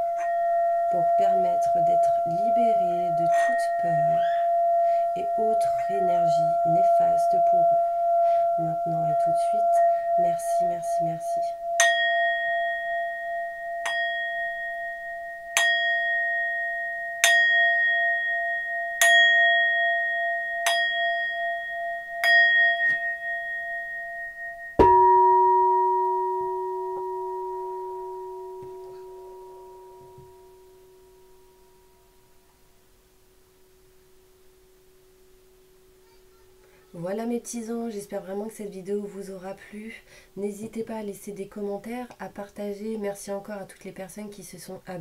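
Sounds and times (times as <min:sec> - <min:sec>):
singing bowl struck with mallet: 0:00.0 - 0:31.8
deeper ringing metal instrument: 0:00.0 - 0:32.4.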